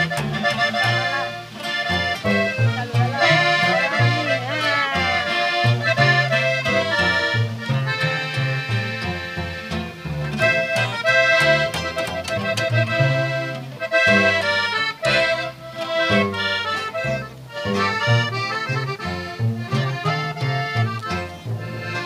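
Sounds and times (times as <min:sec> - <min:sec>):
button accordion melody: 0:00.0 - 0:22.0
plucked upright bass: 0:00.0 - 0:22.0
strummed twelve-string guitar: 0:00.0 - 0:22.0.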